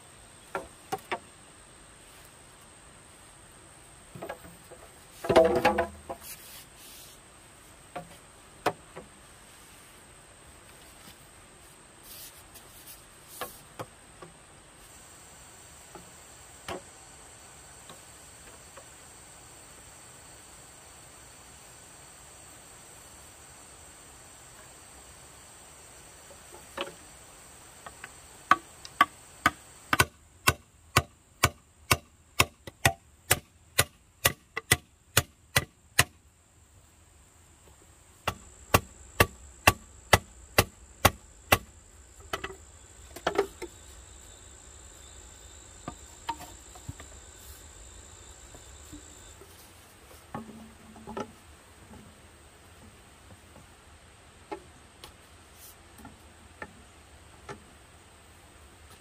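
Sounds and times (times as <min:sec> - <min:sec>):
high insect drone: 0:00.0 - 0:33.7, 0:35.6 - 0:58.6
bamboo knocking: 0:04.1 - 0:06.4, 0:27.8 - 0:36.2, 0:38.2 - 0:43.9, 0:45.8 - 0:47.2, 0:48.5 - 0:52.1.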